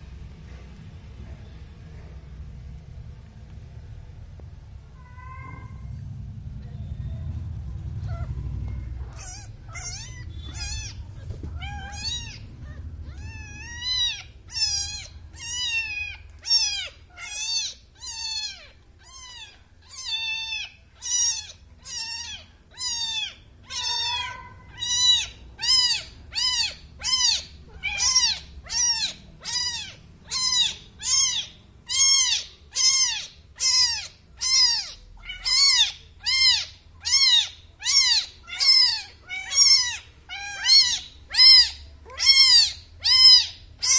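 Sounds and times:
kitten mewing: 9.0 - 43.9.

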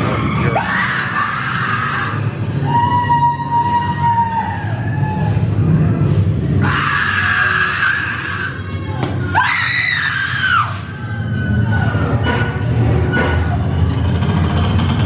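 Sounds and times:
high-pitched screams: 0.0 - 5.8, 6.5 - 12.3
low rumbling spooky soundtrack: 0.0 - 15.0.

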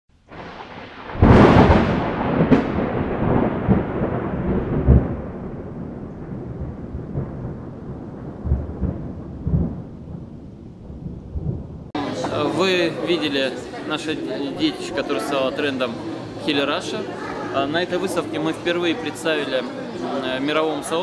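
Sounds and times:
thunder cracking and rumbling: 0.2 - 13.0.

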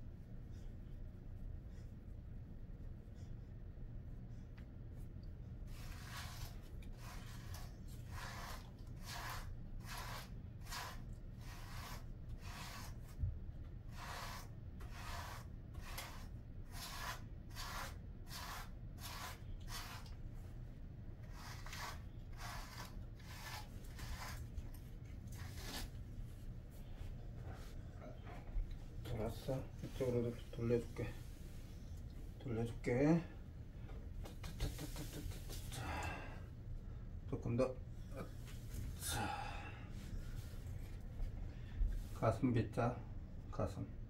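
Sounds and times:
brush swishing through dog fur: 21.4 - 27.8.

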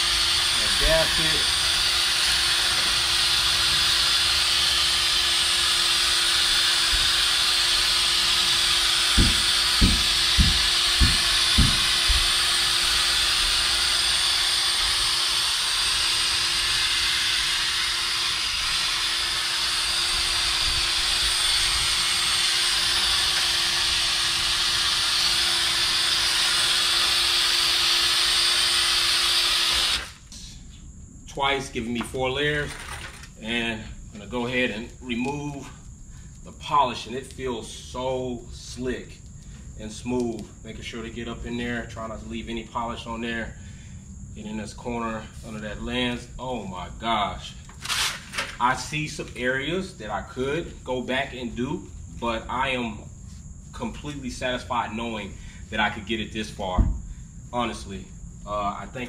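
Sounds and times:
cordless drill whining: 0.0 - 30.3, 47.7 - 48.8
low thumps: 9.0 - 12.4.

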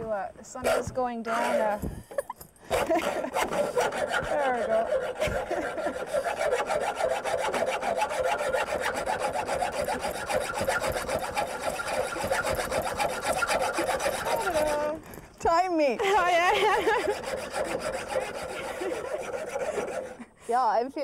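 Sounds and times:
hacksaw cutting metal: 0.5 - 15.2, 16.2 - 20.3.

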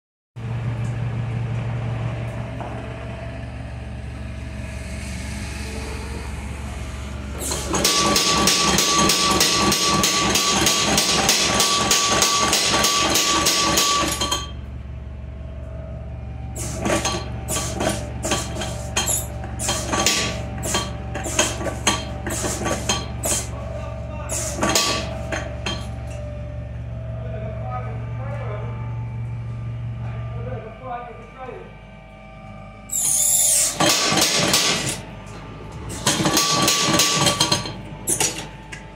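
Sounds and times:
electric motor hum: 0.4 - 8.6
power hammer striking rapidly: 7.4 - 14.5, 16.6 - 23.5, 33.0 - 35.0, 35.9 - 38.4.

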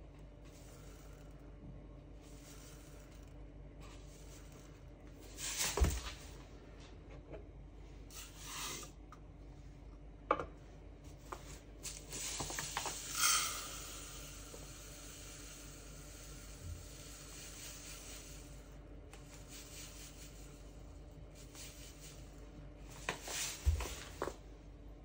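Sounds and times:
sugar pouring hiss: 0.4 - 1.4, 2.2 - 6.0, 11.8 - 24.3.

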